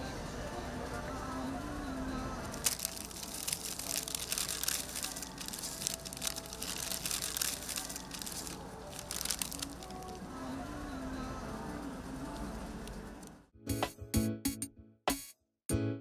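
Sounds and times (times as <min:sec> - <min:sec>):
faint background music: 0:00.0 - 0:13.9
paper wrapper crinkling: 0:02.5 - 0:10.2.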